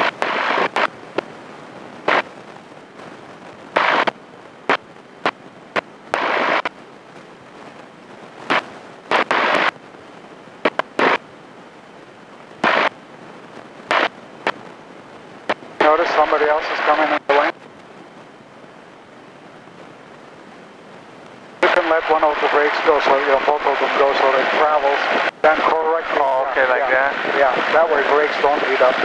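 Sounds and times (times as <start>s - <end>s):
headset crackling: 3.7s - 6.8s, 10.6s - 11.2s.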